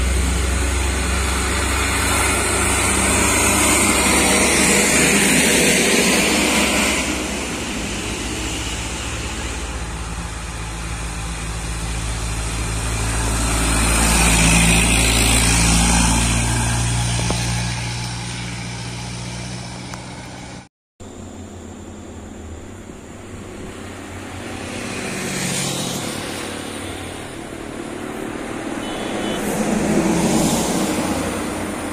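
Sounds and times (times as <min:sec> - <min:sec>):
diesel truck engine labouring: 0:00.0 - 0:20.7
car passing: 0:00.0 - 0:31.9.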